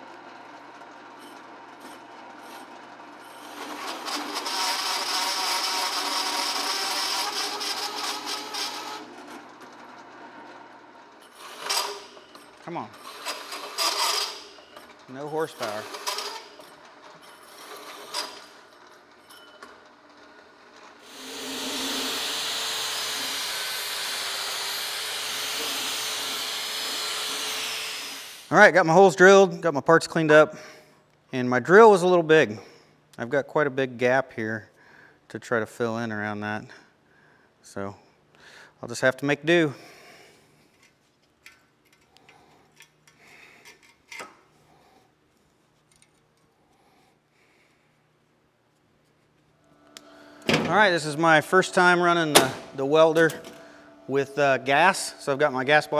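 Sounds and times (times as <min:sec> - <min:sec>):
angle grinder whining: 0:00.6 - 0:18.7, 0:20.8 - 0:28.6, 0:49.7 - 0:55.9
hole saw grinding through steel: 0:01.1 - 0:09.3, 0:11.1 - 0:18.7, 0:21.0 - 0:28.5, 0:50.2 - 0:55.9.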